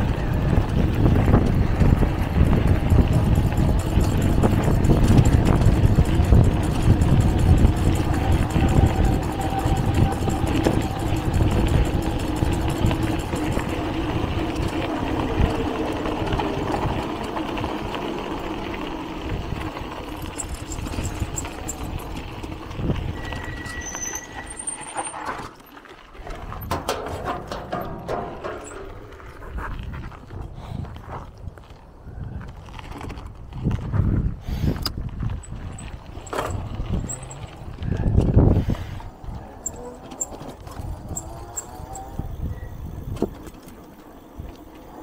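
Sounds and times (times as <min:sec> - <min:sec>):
motor engine running: 0:00.0 - 0:24.1.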